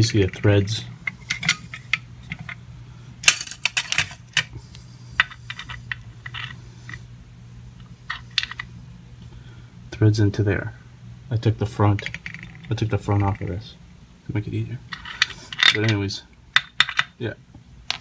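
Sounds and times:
steady low hum: 0:00.0 - 0:18.0
small metal parts clinking: 0:03.2 - 0:04.5, 0:14.9 - 0:17.2.

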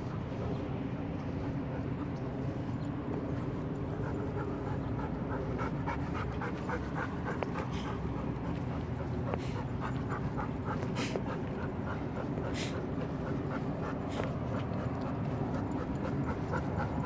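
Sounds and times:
dog panting: 0:00.0 - 0:17.0.

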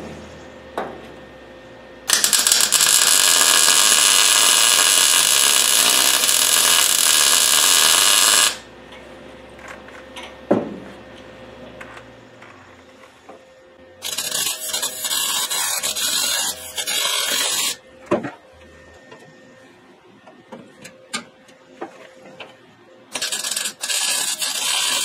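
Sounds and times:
welding arc buzzing: 0:02.1 - 0:08.7, 0:14.0 - 0:17.8, 0:23.1 - 0:25.0.

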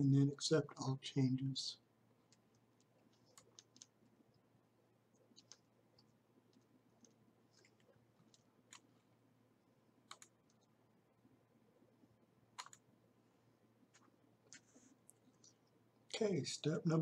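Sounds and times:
faint computer mouse clicks: 0:10.1 - 0:10.7, 0:12.6 - 0:12.8.

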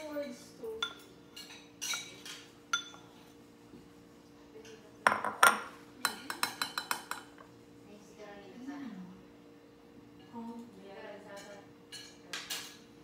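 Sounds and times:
metal spoon clinking on ceramic bowl: 0:00.2 - 0:03.1, 0:05.1 - 0:07.3.

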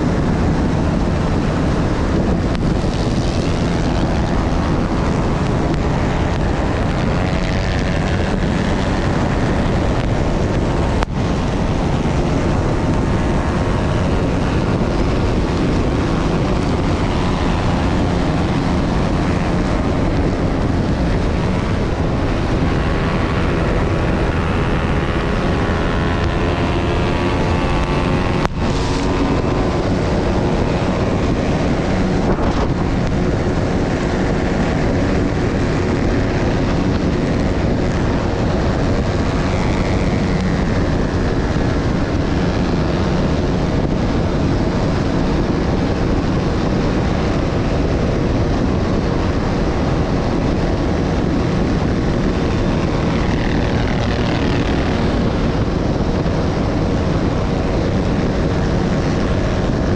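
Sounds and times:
motorcycle engine running hard: 0:00.0 - 0:59.9
other motorcycles nearby: 0:00.0 - 0:59.9
wind buffeting microphone: 0:00.0 - 0:59.9.

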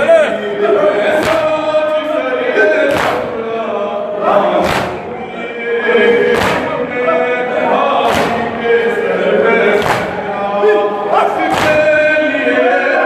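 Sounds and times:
men chanting in chorus: 0:00.0 - 0:13.0
chest slapping in unison: 0:01.2 - 0:01.6, 0:02.8 - 0:03.4, 0:04.5 - 0:05.2, 0:06.3 - 0:06.8, 0:07.9 - 0:08.6, 0:09.7 - 0:10.3, 0:11.5 - 0:12.1.

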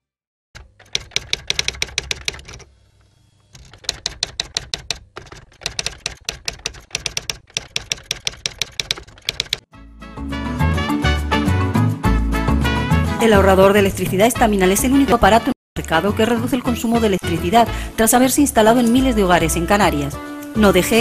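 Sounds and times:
typewriter keys clacking: 0:00.6 - 0:02.7, 0:03.6 - 0:09.7.

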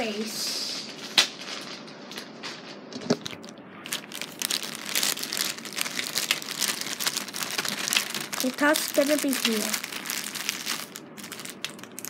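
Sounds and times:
plastic bag crinkling: 0:03.1 - 0:12.0.

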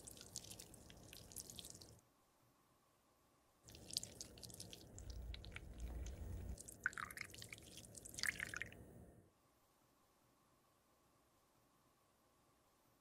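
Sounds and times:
faint small ticks and drips: 0:00.0 - 0:02.0, 0:03.7 - 0:08.8
thick liquid pouring and dripping: 0:00.0 - 0:02.0, 0:03.7 - 0:08.8.

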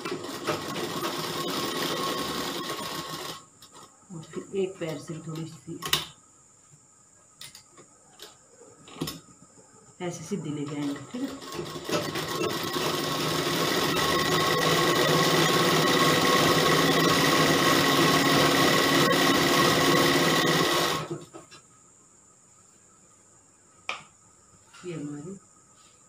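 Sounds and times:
sewing machine running: 0:00.0 - 0:03.4, 0:10.8 - 0:21.1.

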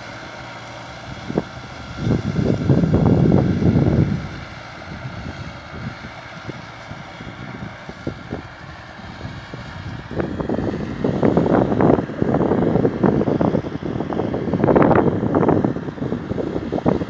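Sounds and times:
tractor engine running: 0:00.0 - 0:17.0
wind buffeting microphone: 0:00.0 - 0:17.0.

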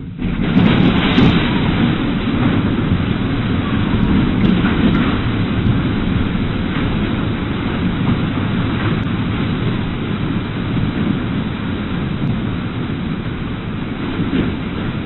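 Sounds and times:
floodwater rushing: 0:00.6 - 0:15.0.

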